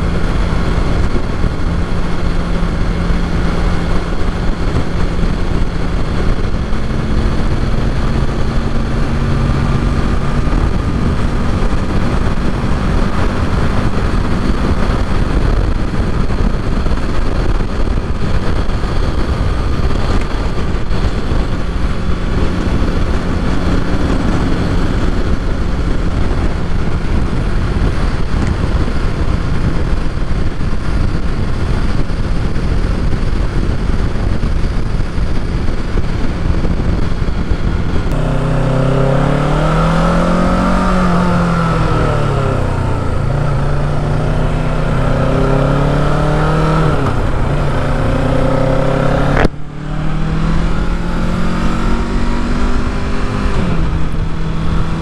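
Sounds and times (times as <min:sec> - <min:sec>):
motorcycle engine cruising: 0:00.0 - 0:55.0
wind and road noise: 0:00.0 - 0:55.0.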